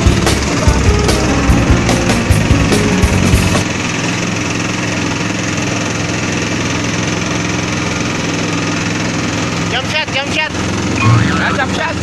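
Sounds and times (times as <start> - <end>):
music with heavy beat: 0.0 - 3.7
motor engine running: 0.0 - 12.0.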